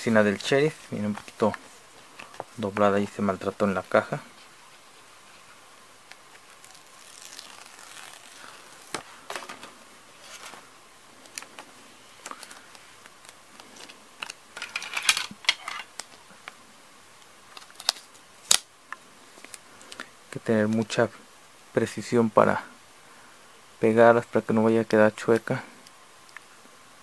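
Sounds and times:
paper sticker sheet crinkling: 5.3 - 9.6.

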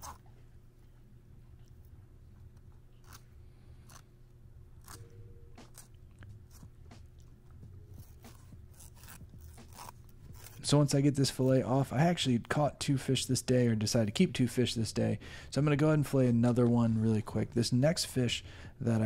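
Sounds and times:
steady low hum: 0.0 - 19.0
knife crunching through fish: 4.8 - 7.2, 7.9 - 10.7.

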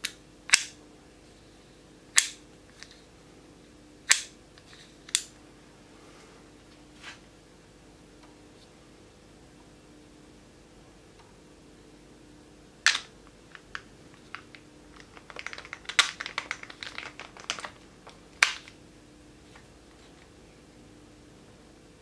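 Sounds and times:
sharp snap: 0.0 - 0.8, 2.2 - 2.4, 4.1 - 4.4.

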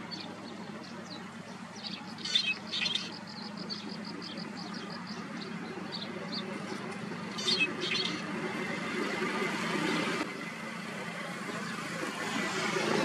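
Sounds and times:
bird chirps: 0.0 - 8.3
distant engine rumble: 0.0 - 13.0.

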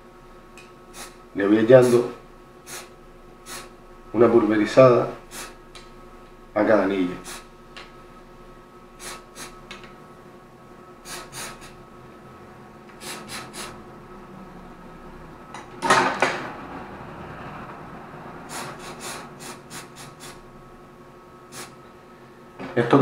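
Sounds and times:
faint steady hum: 0.0 - 23.0
aerosol spray puffs: 0.9 - 1.2, 2.7 - 2.9, 9.0 - 9.6, 11.1 - 11.7, 13.0 - 13.8, 18.5 - 20.4.

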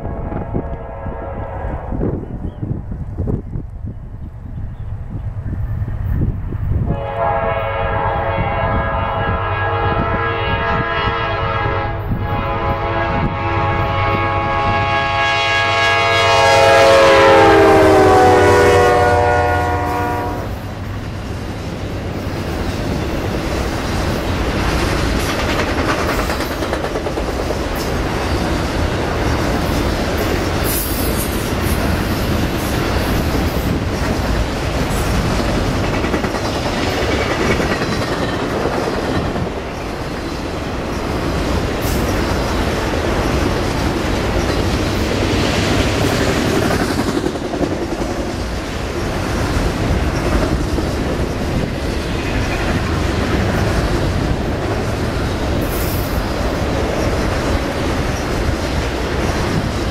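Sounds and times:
locomotive air horn chord: 0.0 - 2.0, 6.9 - 20.6
train cars rumbling and clattering: 0.0 - 59.9.

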